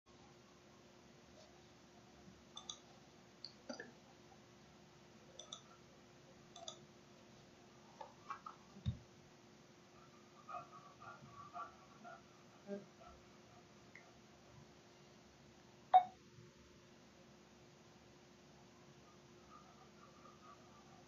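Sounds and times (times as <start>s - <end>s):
computer mouse clicks: 2.6s - 2.8s, 5.4s - 5.7s, 6.6s - 6.8s.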